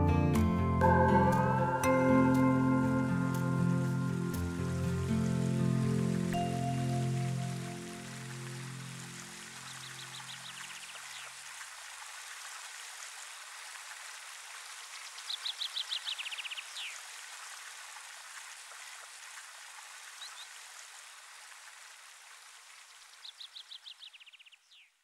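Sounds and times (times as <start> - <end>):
stream flowing: 0.8 - 24.7
bird singing: 9.6 - 11.3, 15.3 - 17.0, 23.2 - 25.0.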